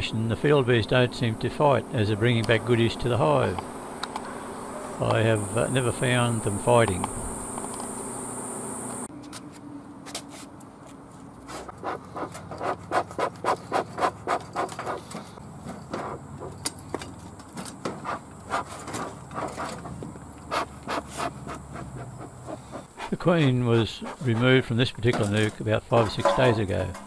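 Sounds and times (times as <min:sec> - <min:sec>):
honeybees buzzing: 0:00.0 - 0:09.1
low steady hum: 0:00.0 - 0:09.1
bellows puffing air: 0:01.8 - 0:09.0, 0:11.5 - 0:16.6, 0:18.0 - 0:24.7.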